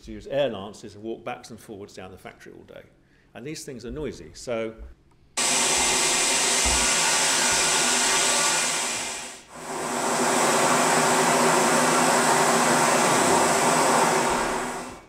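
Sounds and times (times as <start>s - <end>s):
compressed air jet hissing: 5.4s - 15.0s.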